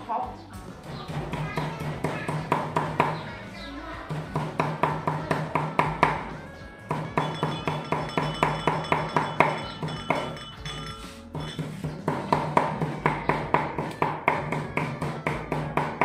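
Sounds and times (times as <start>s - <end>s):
cleaver chopping on wooden block: 12.0s - 16.0s.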